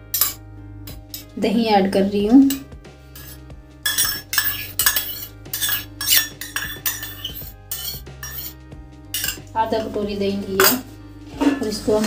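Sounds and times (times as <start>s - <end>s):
spoon scraping metal bowl: 0.1s - 0.4s, 1.1s - 1.4s, 2.4s - 8.6s, 9.2s - 9.5s, 10.6s - 12.0s.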